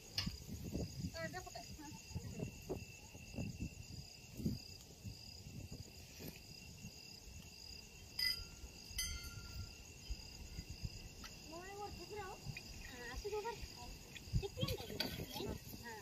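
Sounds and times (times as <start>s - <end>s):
crickets chirping: 0.0s - 16.0s
sharp ringing clinks: 8.1s - 9.9s.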